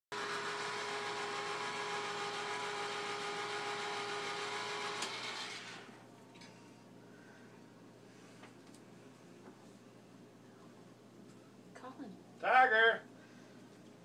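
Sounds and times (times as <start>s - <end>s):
small electric motor humming: 0.2s - 5.9s.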